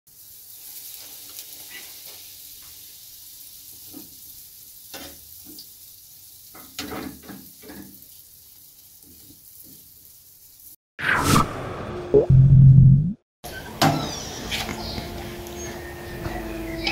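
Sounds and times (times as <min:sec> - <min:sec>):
oil sizzling in frying pan: 0:00.1 - 0:10.8.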